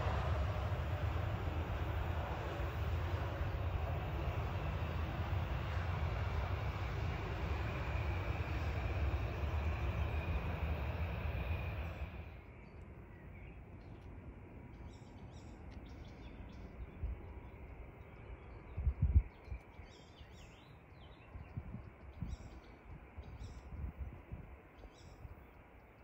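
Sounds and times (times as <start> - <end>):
aircraft engine noise: 0.0 - 12.5.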